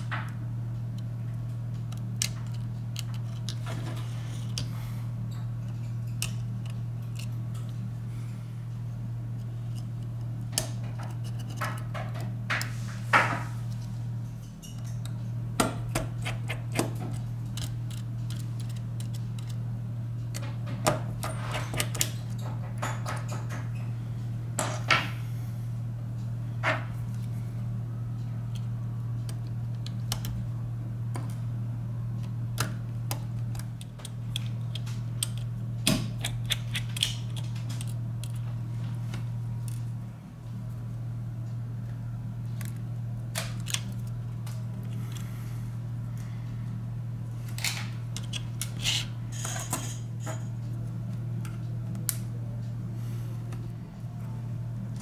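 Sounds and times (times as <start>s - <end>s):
steady low hum: 0.0s - 55.0s
tools clicking on phone parts: 1.8s - 4.7s, 5.6s - 7.8s, 9.4s - 12.7s, 14.6s - 19.6s, 20.3s - 23.6s, 32.6s - 38.4s, 42.6s - 45.2s, 47.5s - 50.4s.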